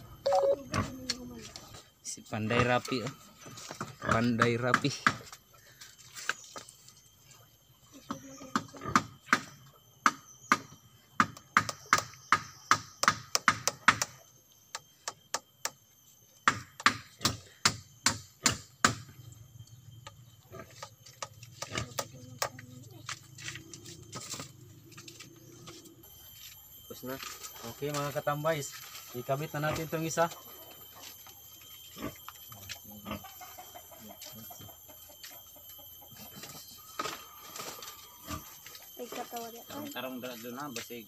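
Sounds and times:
hammer striking nails into wood: 10.5 - 14.2.

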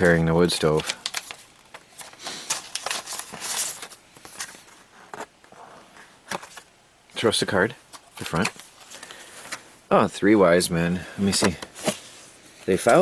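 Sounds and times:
paper rustling and crinkling: 0.0 - 5.3, 6.0 - 6.7, 7.9 - 9.7, 11.2 - 13.0.

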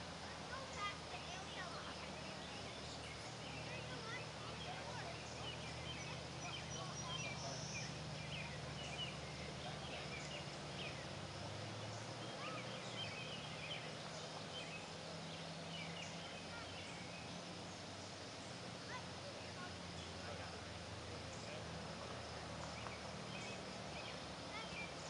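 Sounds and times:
steady low hum: 0.0 - 25.0
bird chirps and calls: 0.5 - 20.2.

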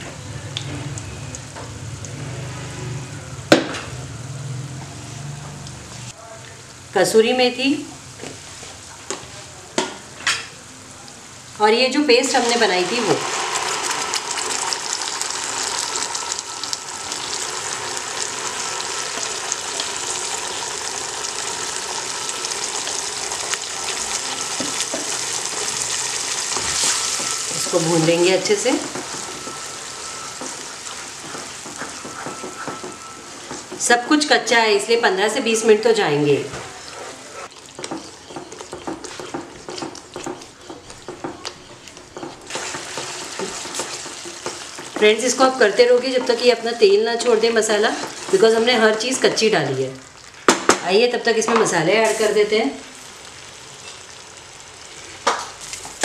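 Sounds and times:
hot oil sizzling and crackling: 0.0 - 3.0, 7.9 - 36.2, 37.4 - 56.0
wooden spatula scraping a pan: 36.6 - 46.5.

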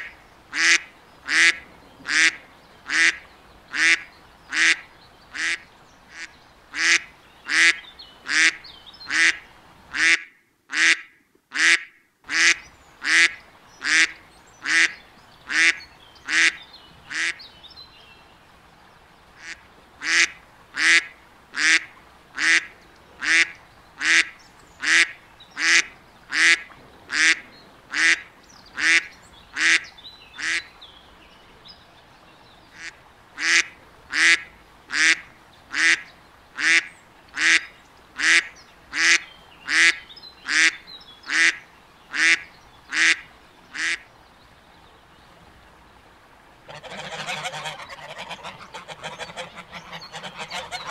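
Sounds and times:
duck quacking: 0.0 - 4.8, 5.4 - 14.9, 15.5 - 17.4, 19.4 - 28.2, 28.8 - 29.8, 38.2 - 43.2, 46.7 - 50.9.

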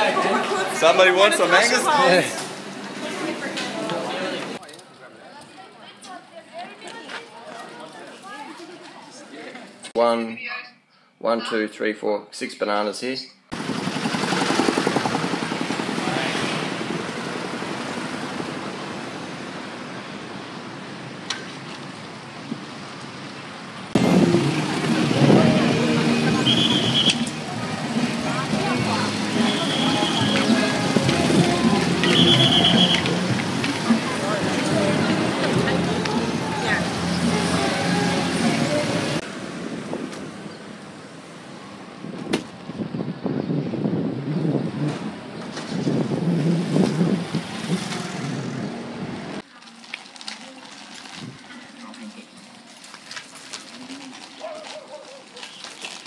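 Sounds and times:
cars and scooters passing: 0.0 - 4.6, 13.5 - 49.5
street traffic: 0.0 - 11.5, 13.4 - 56.0
wind on microphone: 42.0 - 49.2.

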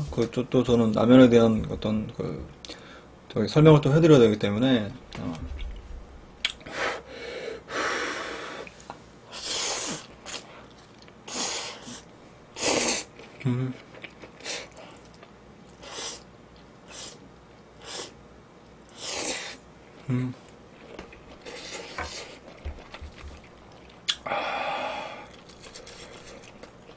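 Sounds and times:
quiet chewing: 10.1 - 11.2, 13.1 - 16.8, 19.9 - 24.2, 25.2 - 26.9
person slurping noodles: 11.3 - 13.1, 17.8 - 18.2, 18.9 - 19.6.

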